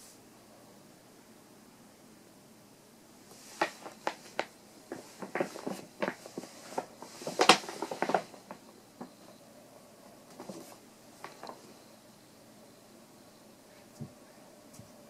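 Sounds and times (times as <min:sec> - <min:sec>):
paper bag crinkling: 0:03.4 - 0:09.1, 0:10.3 - 0:11.6.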